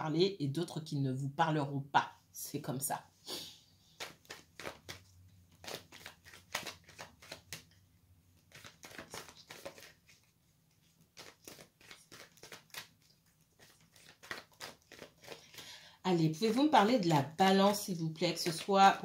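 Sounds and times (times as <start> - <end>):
cards being shuffled: 3.9 - 7.8, 8.4 - 19.0.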